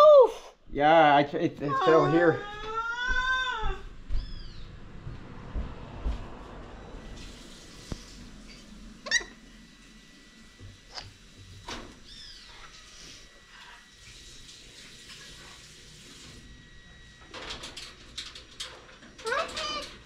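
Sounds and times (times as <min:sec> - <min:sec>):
parrot squawking: 0:09.0 - 0:09.4.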